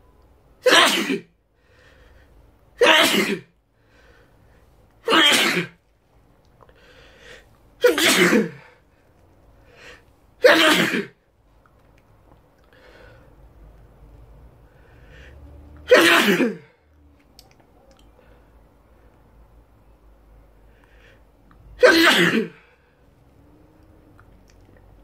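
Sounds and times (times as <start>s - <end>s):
man sneezing loudly: 0.6s - 1.3s, 2.8s - 3.5s, 5.0s - 5.8s, 7.8s - 8.7s, 10.4s - 11.2s, 15.8s - 16.8s, 21.8s - 22.7s.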